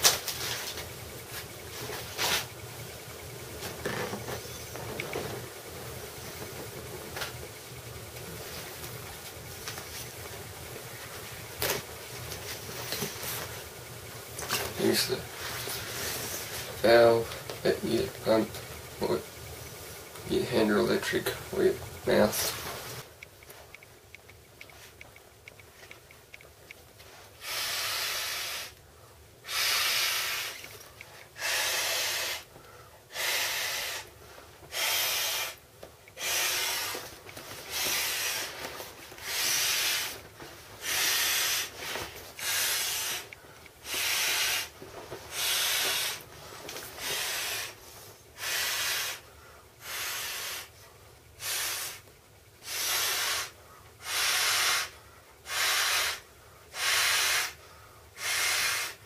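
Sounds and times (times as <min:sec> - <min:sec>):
breaths blown into inflatable ring: 0:52.6 - 0:57.6, 0:58.2 - 0:59.0.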